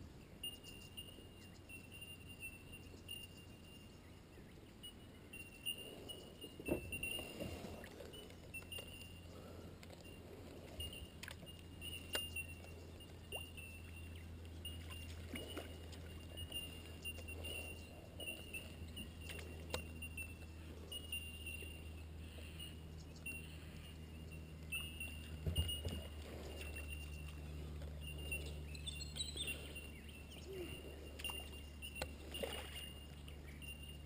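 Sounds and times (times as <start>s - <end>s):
kayak paddle in water: 0.0s - 34.0s
insect chirping: 0.4s - 34.0s
knocks and drips against hull: 24.9s - 28.0s.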